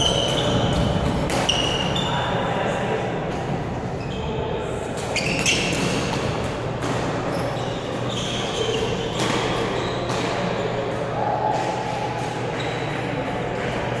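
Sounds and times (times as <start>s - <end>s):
shoes squeaking on gym floor: 0.0s - 2.2s, 5.1s - 6.2s, 7.1s - 10.4s
background noise from other courts: 0.0s - 14.0s
racket hitting shuttlecock: 0.1s - 1.9s, 5.0s - 7.3s, 8.8s - 12.6s.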